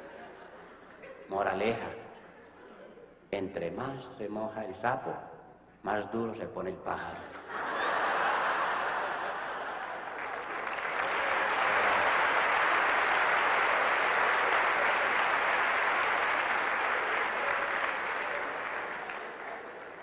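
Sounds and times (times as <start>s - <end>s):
audience applauding: 7.8s - 20.0s.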